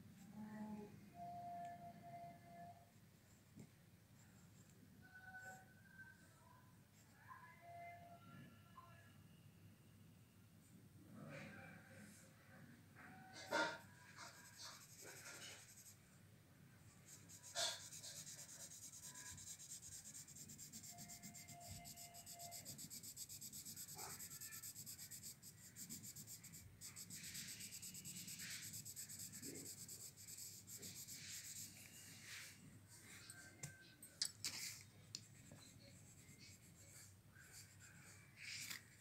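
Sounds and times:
pencil scratching on paper: 0:13.4 - 0:16.0, 0:17.0 - 0:32.4, 0:35.4 - 0:38.8.

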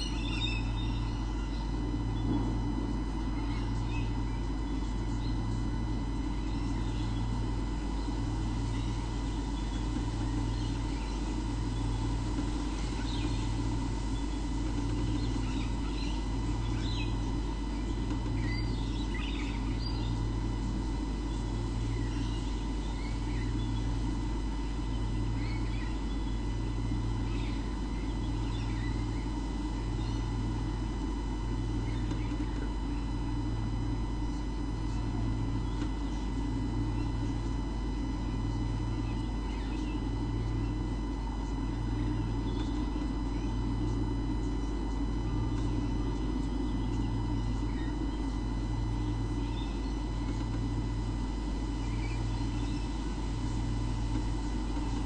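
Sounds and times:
faint bird chirps: 0:00.0 - 0:02.5, 0:12.9 - 0:20.3, 0:21.2 - 0:24.0, 0:24.6 - 0:26.4, 0:27.2 - 0:30.3, 0:49.0 - 0:50.3, 0:51.7 - 0:53.1
electrical hum with throb: 0:00.0 - 0:55.0
thin steady whine: 0:00.0 - 0:55.0.

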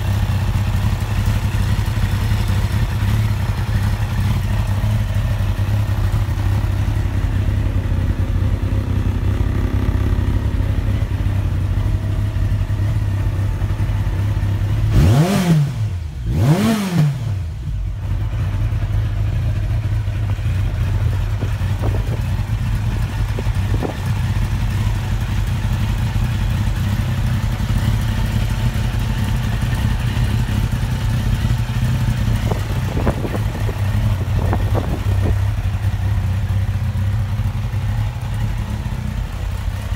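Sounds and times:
motorcycle engine idling: 0:00.0 - 0:39.9
engine revving: 0:14.7 - 0:17.7.

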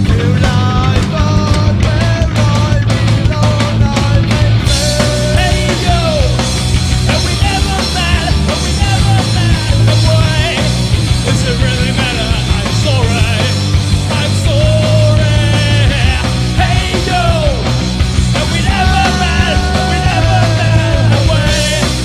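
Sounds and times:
loud rock song with singing: 0:00.0 - 0:22.0.

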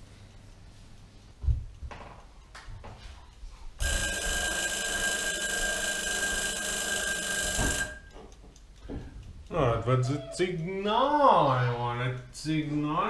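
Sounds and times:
timer alarm ringing: 0:03.8 - 0:08.4.

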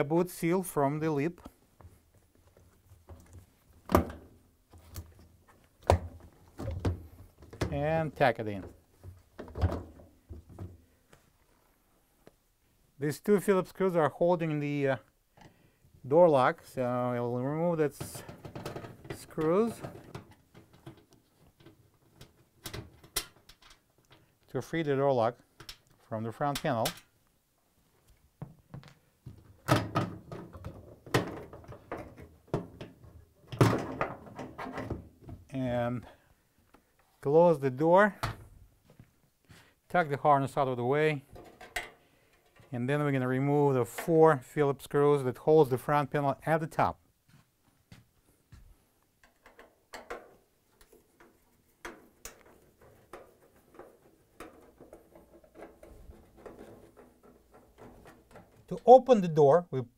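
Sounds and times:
screwdriver clicks and metallic rattles: 0:41.4 - 0:42.7.

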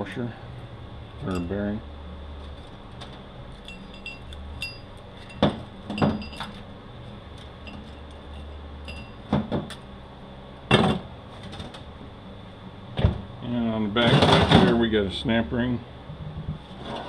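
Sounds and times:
faint metallic ringing: 0:01.2 - 0:01.7, 0:03.5 - 0:06.6, 0:07.6 - 0:09.3
metal parts clinking and knocking: 0:03.6 - 0:06.6.

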